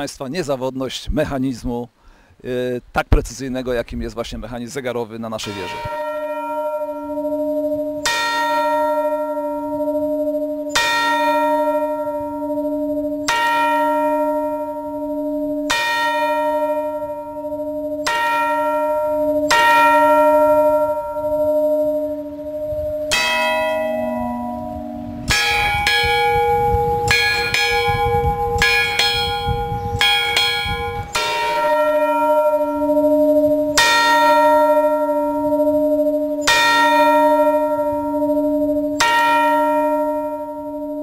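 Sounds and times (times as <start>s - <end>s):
tower bell strike: 5.4s - 41.0s
deeper bell struck slowly: 18.5s - 41.0s
higher-pitched bell struck quickly: 22.7s - 31.5s.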